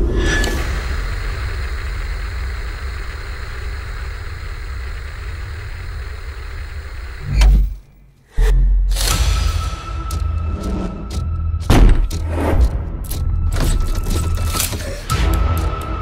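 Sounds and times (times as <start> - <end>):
television static hiss: 0.6 - 7.3.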